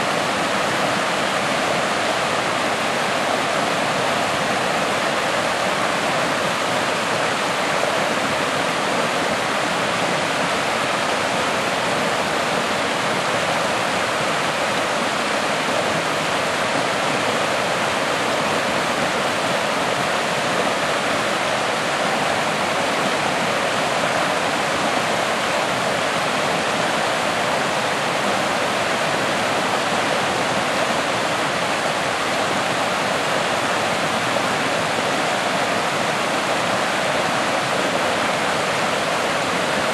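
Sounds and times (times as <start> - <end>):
stream rushing over boulders: 0.0 - 39.9.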